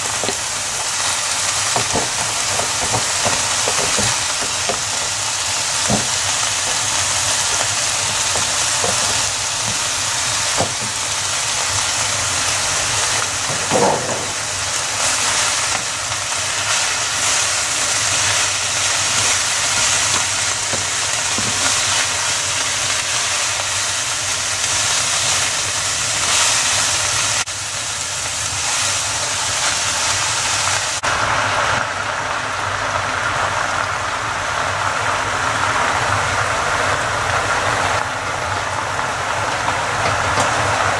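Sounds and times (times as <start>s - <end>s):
vegetables sizzling in frying pan: 0.0s - 40.9s
wooden spatula knocking and scraping: 1.8s - 5.0s, 5.8s - 6.8s, 8.2s - 9.8s.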